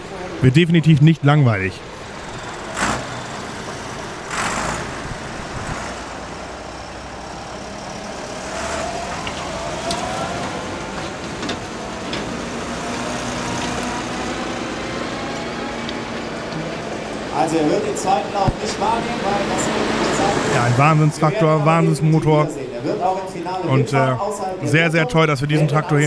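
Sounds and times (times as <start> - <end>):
tractor engine running: 0.0 - 23.7.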